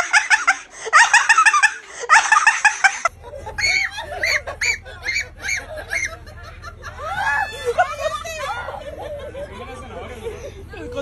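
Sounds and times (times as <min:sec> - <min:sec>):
shrieking: 0:00.0 - 0:06.2
high-pitched laughing: 0:00.0 - 0:09.4.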